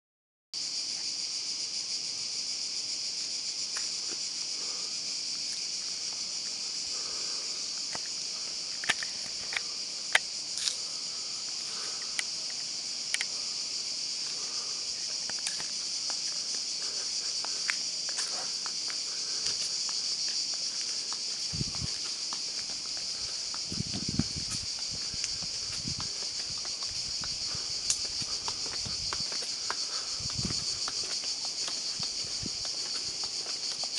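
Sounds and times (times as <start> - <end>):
cicadas chorus: 0.6 - 33.9
footsteps: 14.2 - 33.9.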